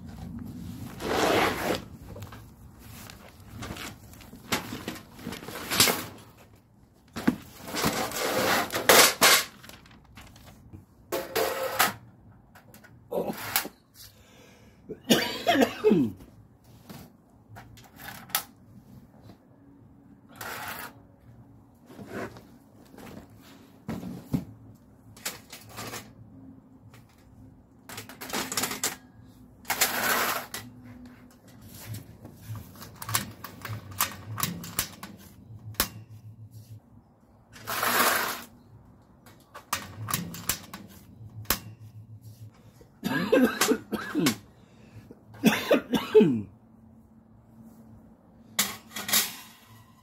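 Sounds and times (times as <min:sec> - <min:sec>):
metal grill parts clinking: 0:48.6 - 0:50.0.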